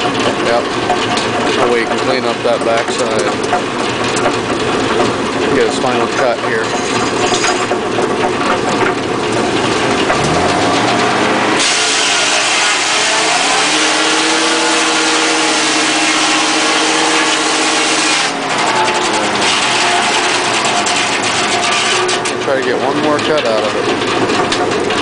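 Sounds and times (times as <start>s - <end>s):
sawmill drive humming: 9.2s - 22.5s
circular saw blade cutting log: 10.0s - 22.2s.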